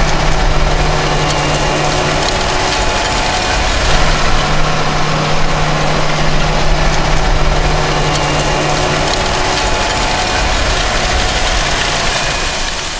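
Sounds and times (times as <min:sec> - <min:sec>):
tractor diesel engine under load: 0:00.0 - 0:12.9.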